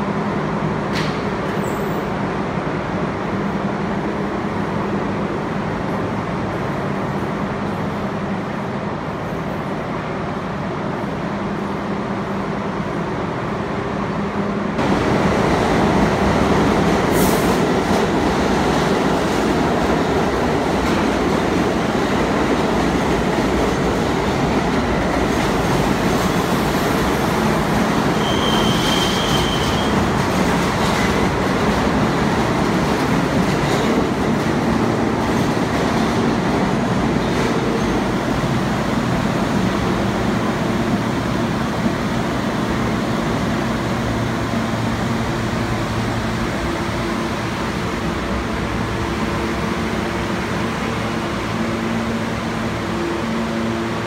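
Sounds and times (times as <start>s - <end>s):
low hum of standing train: 0.0s - 54.0s
subway train wheels rumbling on rails: 0.0s - 54.0s
high wheel squeal: 28.1s - 30.1s.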